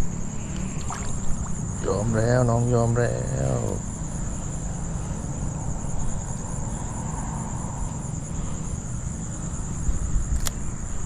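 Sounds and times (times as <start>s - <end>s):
crickets chirring: 0.0s - 11.0s.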